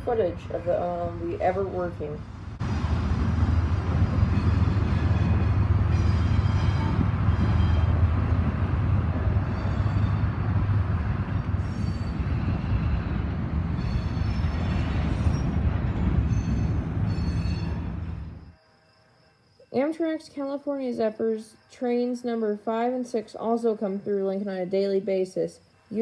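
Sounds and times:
diesel locomotive engine drone: 0.0s - 26.0s
rumble of rolling rail cars: 0.0s - 26.0s
wheels squealing: 9.3s - 10.6s, 11.3s - 19.8s.

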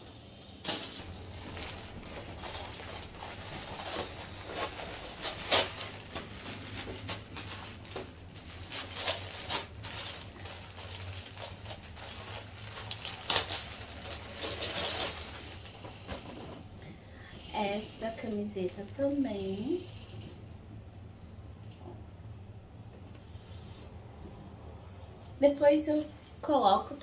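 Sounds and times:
plastic packaging crinkling: 0.6s - 15.9s.

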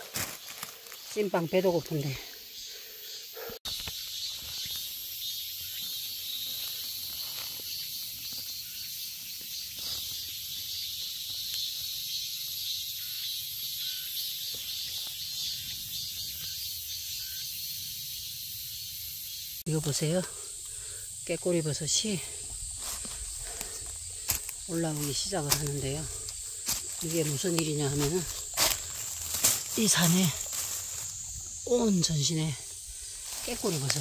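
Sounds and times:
insects chirring: 0.0s - 34.0s.

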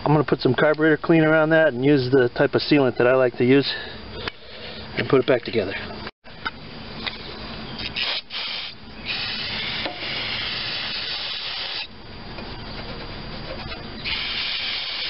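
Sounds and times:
aerosol can spraying: 14.0s - 15.0s.

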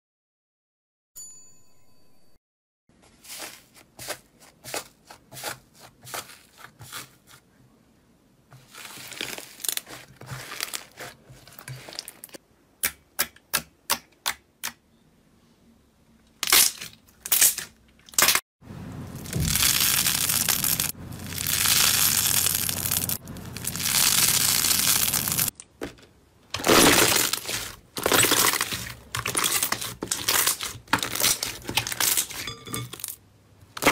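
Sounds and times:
slime squishing: 8.6s - 12.4s, 26.6s - 32.4s.

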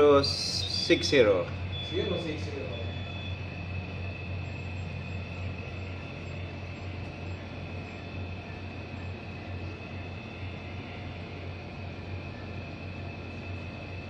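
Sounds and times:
faint pulsing high tone: 0.0s - 14.0s
low ship engine hum: 0.0s - 14.0s
steady high whine: 0.0s - 14.0s.

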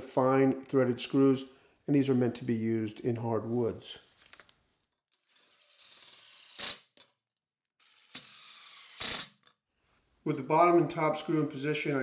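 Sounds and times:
drill driving screws into wood: 5.2s - 7.0s, 7.8s - 9.5s.

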